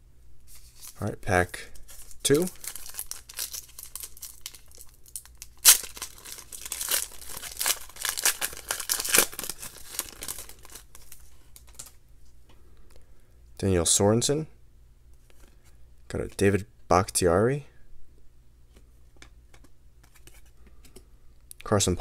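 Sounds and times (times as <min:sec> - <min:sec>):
foil wrapper crinkling: 0:01.8 - 0:12.0
foil wrapper tearing: 0:01.9 - 0:11.9.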